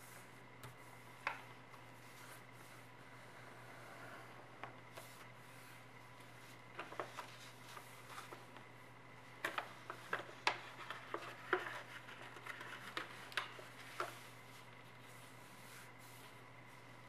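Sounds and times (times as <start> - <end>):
low steady hum: 0.0 - 17.0
paper being folded and creased: 4.9 - 8.5, 9.4 - 16.4.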